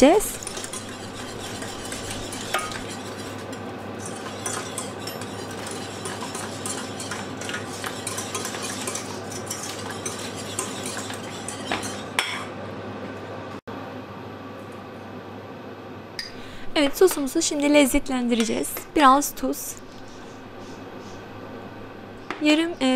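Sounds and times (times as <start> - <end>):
wire whisk scraping a saucepan: 0.0 - 12.4
steady low hum: 0.0 - 22.9.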